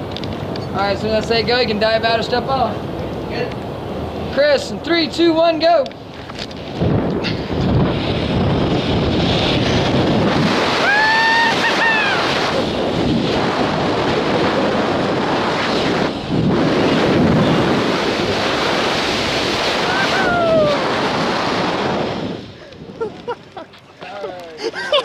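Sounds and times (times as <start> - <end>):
wind rushing over microphone: 0.0 - 24.1
high rising and falling tones: 7.6 - 14.2.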